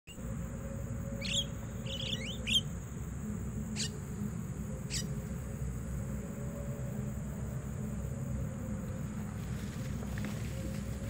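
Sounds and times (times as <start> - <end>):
myna bird sharp calls: 1.2 - 2.7.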